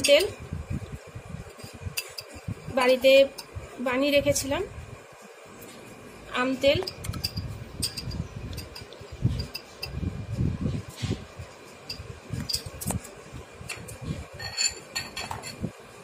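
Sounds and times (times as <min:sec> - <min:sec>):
metal spoon clinking on glass bowl: 0:06.8 - 0:10.0, 0:11.8 - 0:12.8, 0:14.4 - 0:15.6.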